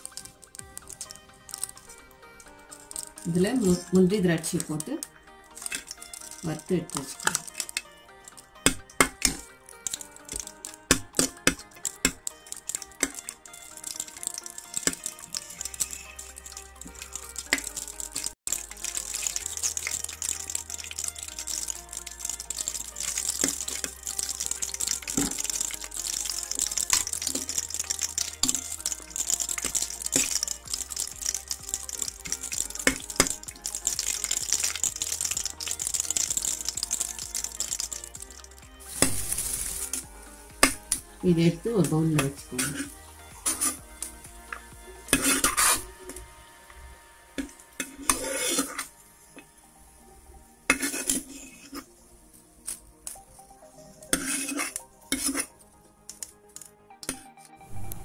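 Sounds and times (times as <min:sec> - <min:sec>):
frying sizzle with crackles: 0:00.0 - 0:58.0
steel spoon scraping a pot: 0:05.5 - 0:40.0, 0:42.2 - 0:43.9, 0:44.5 - 0:46.2, 0:47.4 - 0:48.9, 0:50.7 - 0:51.9, 0:53.8 - 0:56.3.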